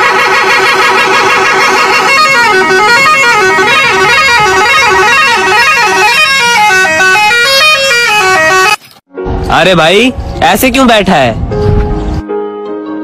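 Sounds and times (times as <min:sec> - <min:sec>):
musical vehicle horn melody: 0:00.0 - 0:09.0.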